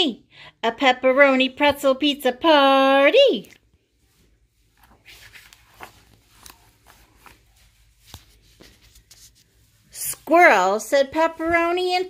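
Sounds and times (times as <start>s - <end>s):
book page turning: 4.6s - 9.8s.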